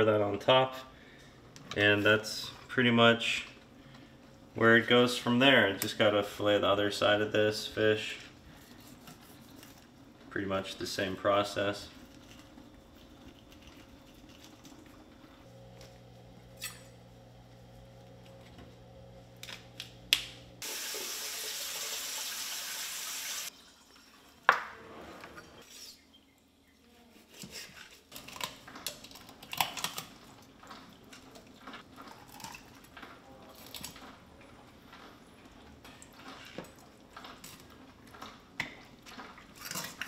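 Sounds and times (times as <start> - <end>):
tap water running: 20.6 - 24.7.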